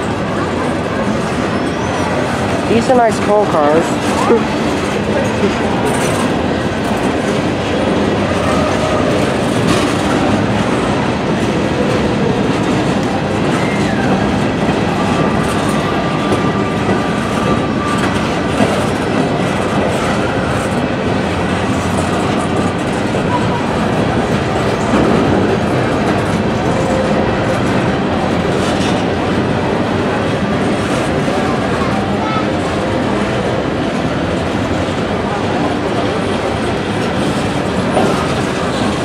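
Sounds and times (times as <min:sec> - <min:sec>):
train cars rumbling on rails: 0:00.0 - 0:39.0
wheel squeal: 0:01.2 - 0:02.5.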